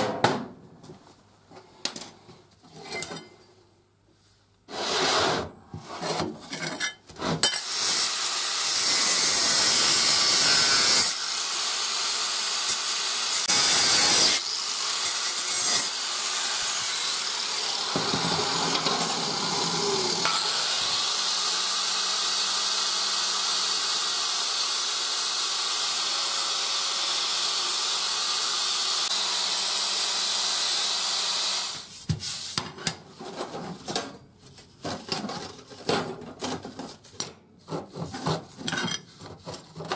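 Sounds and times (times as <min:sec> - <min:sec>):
abrasive power tool on steel: 0:07.5 - 0:31.9.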